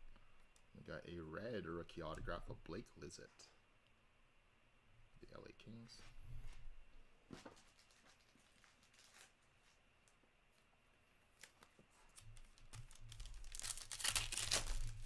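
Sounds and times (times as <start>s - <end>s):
soft handling of cards: 5.9s - 15.0s.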